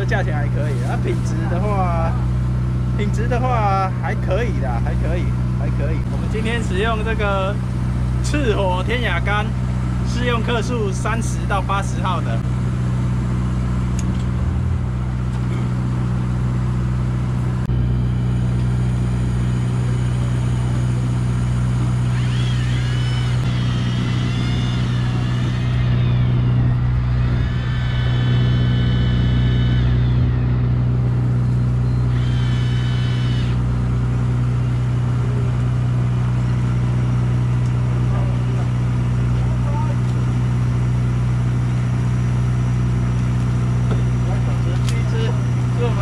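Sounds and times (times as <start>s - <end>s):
boat engine droning: 0.0s - 46.0s
electric fishing reel whining: 19.6s - 34.0s.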